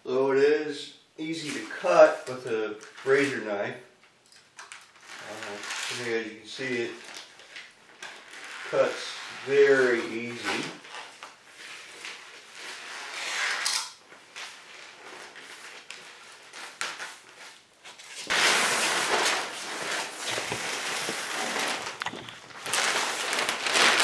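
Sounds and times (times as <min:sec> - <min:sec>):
foil scraping and rustling: 0:05.0 - 0:06.1, 0:14.4 - 0:24.0
foil crinkling loudly: 0:05.0 - 0:13.2, 0:18.2 - 0:24.0.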